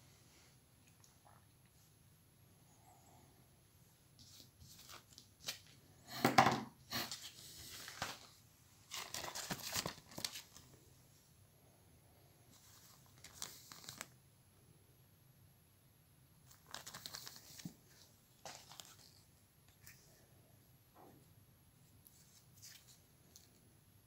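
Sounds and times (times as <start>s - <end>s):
plastic packet crinkling: 8.9s - 10.7s, 12.6s - 14.1s, 16.5s - 17.8s, 18.4s - 19.2s.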